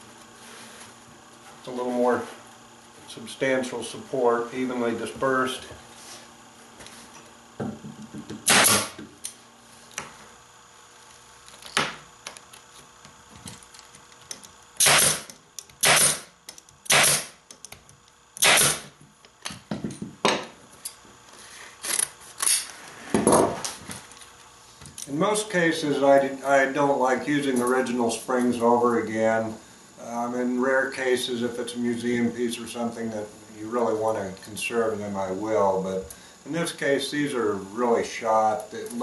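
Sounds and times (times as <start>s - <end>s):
pneumatic staple gun firing: 8.4s - 9.0s, 14.8s - 17.4s, 18.4s - 19.0s.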